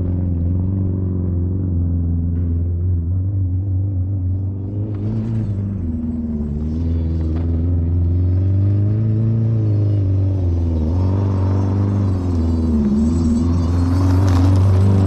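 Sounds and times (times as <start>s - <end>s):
rally car engine revving: 0.0s - 15.0s.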